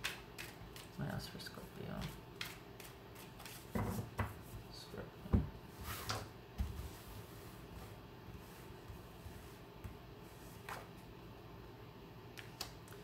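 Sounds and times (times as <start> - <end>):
cards shuffled by hand: 0.0 - 1.0, 1.9 - 3.7.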